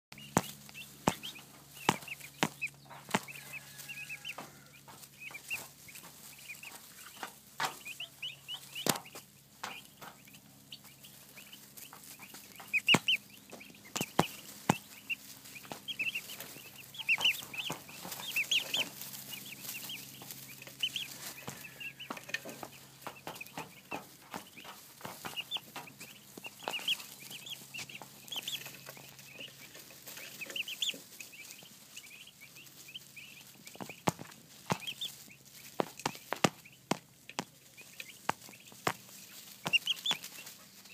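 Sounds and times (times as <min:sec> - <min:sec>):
turkey poults peeping: 0:00.1 - 0:40.9
beaks tapping on camera: 0:00.2 - 0:10.4, 0:11.8 - 0:18.9, 0:33.6 - 0:40.9.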